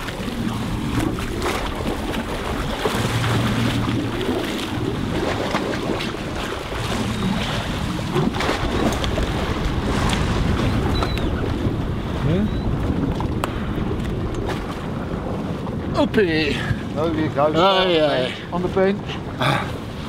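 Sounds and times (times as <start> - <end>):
water washing against boat hull: 0.0 - 20.0
wind buffeting microphone: 0.0 - 20.0.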